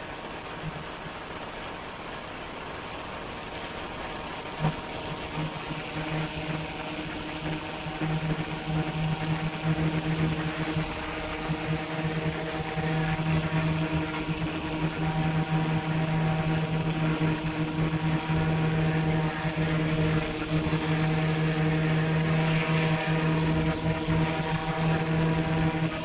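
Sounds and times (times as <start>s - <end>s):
propeller aircraft engine hum: 0.0s - 26.0s
light rushing hiss: 0.6s - 5.8s.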